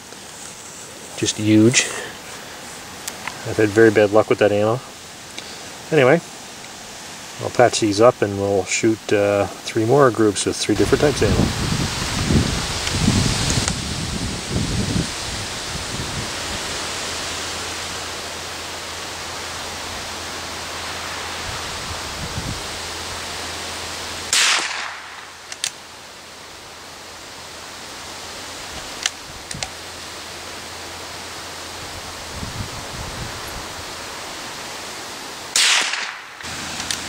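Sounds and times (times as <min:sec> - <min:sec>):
wind noise on microphone: 0:10.8 - 0:18.0, 0:20.0 - 0:23.5, 0:28.6 - 0:29.8, 0:31.7 - 0:34.2
rifle shot crack: 0:24.3 - 0:25.8, 0:35.5 - 0:37.0
faint clicks: 0:25.5 - 0:25.8.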